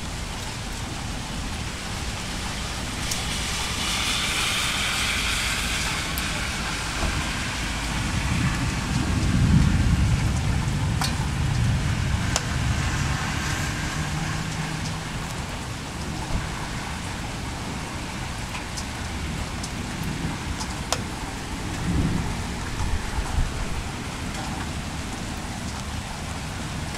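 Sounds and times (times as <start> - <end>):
steady rain: 0.0 - 26.9
thunder rolling: 5.8 - 14.5, 19.1 - 25.4.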